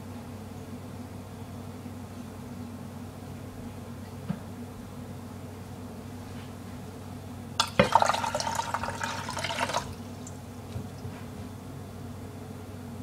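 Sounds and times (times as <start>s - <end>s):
tap water running into a glass cup: 7.6s - 10.4s.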